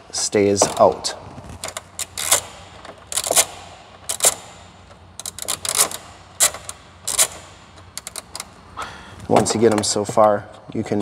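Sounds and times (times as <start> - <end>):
hand ratchet clicking: 1.6 - 8.5.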